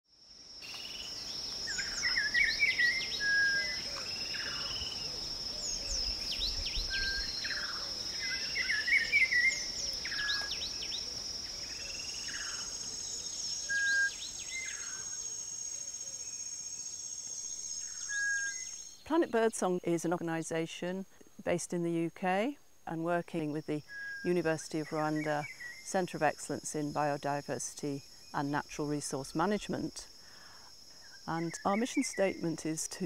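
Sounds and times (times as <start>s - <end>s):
high insect drone: 0.1s - 33.0s
birds chirping and whistling: 1.7s - 15.2s, 17.4s - 19.0s.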